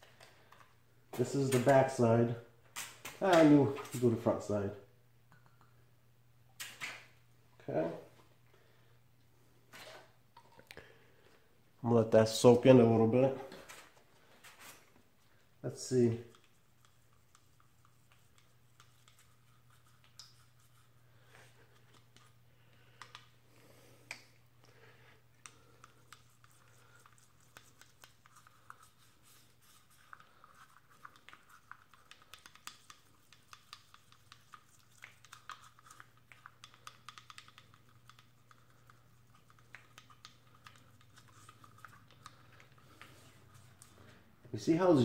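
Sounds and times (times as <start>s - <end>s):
toothbrush scrubbing metal: 16.3s - 21.0s, 25.4s - 44.0s.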